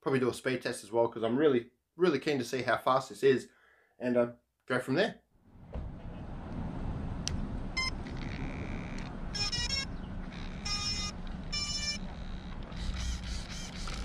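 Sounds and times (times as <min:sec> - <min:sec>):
low background rumble: 0:05.4 - 0:13.4.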